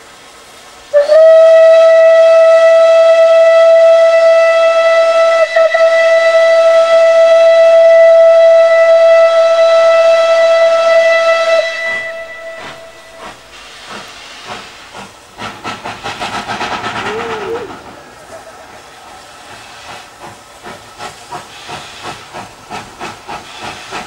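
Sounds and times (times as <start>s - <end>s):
steam locomotive whistle: 0.9s - 14.6s, 16.9s - 17.8s.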